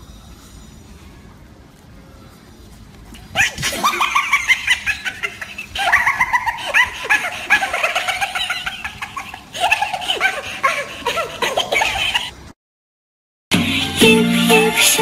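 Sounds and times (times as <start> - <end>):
high-pitched laughter: 3.3 - 12.4.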